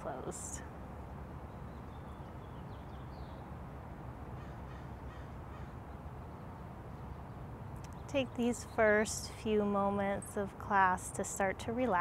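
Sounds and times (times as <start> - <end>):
low background noise: 0.0 - 12.0
faint bird calls: 4.4 - 5.9.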